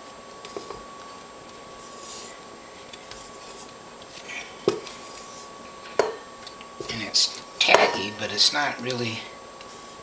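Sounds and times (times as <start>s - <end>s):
faint hum: 0.0s - 10.0s.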